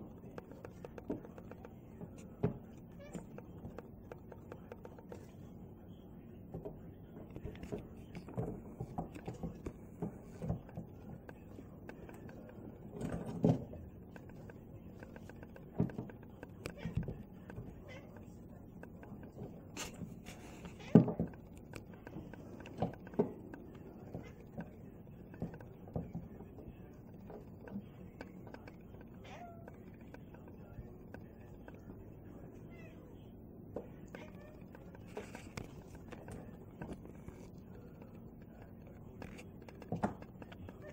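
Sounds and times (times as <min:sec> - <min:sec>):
crows tapping on skylight: 0:00.0 - 0:40.9.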